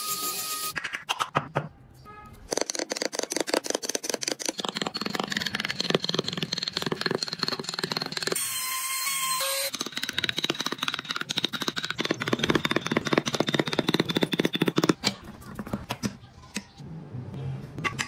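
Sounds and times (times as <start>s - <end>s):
chisel scraping wood: 2.5s - 8.4s
small rotary power tool: 7.7s - 10.5s.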